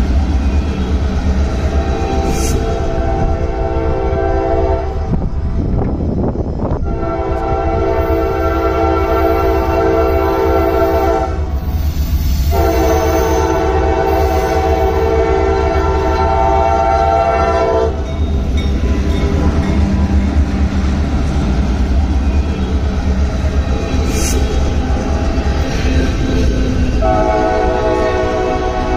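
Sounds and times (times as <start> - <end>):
passing train rumble: 0.0 - 28.9
locomotive horn blasts: 1.7 - 5.2, 6.8 - 11.5, 12.5 - 18.1, 27.0 - 28.9.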